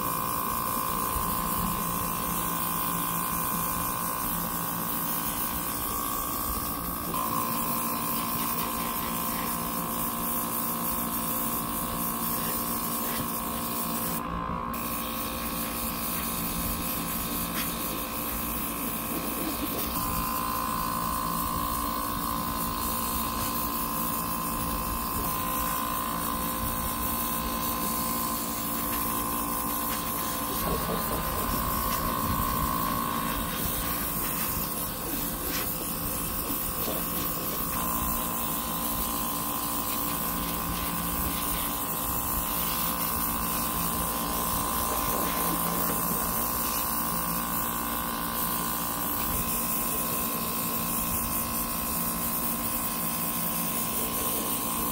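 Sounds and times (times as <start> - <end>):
air compressor humming: 0.0 - 54.9
airbrush hissing spray: 0.0 - 54.9.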